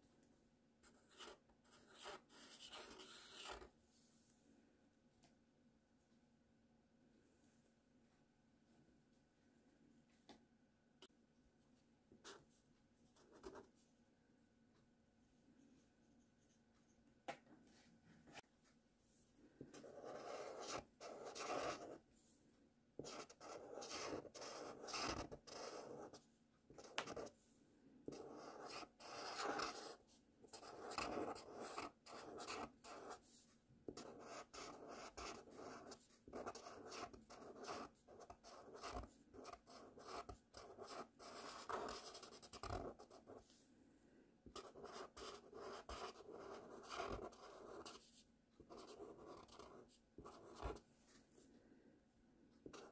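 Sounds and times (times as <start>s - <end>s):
marker scratching on paper: 0.9s - 3.7s, 19.7s - 22.0s, 23.0s - 26.2s, 26.8s - 27.3s, 28.1s - 33.2s, 33.9s - 43.4s, 44.5s - 50.8s, 52.7s - 52.9s.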